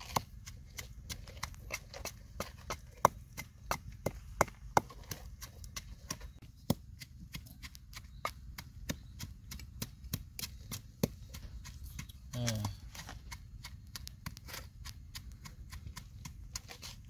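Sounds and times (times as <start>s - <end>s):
pestle pounding in a mortar: 0.0s - 17.0s.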